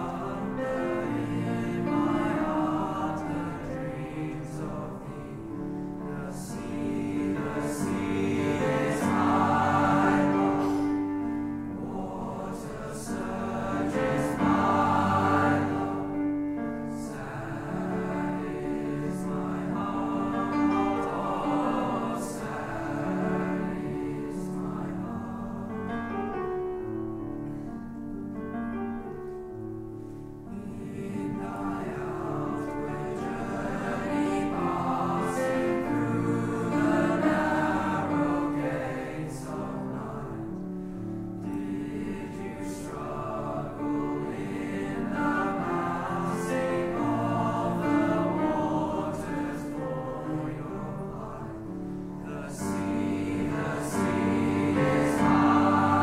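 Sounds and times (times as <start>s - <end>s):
boys choir singing: 0.0s - 26.4s, 30.5s - 56.0s.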